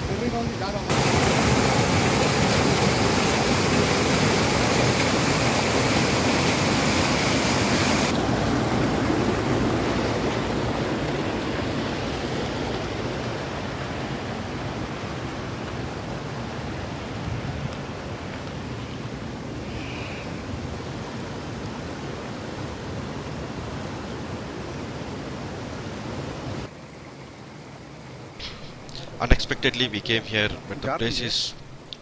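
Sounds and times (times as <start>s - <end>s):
river water rushing over rocks: 0.1s - 19.4s.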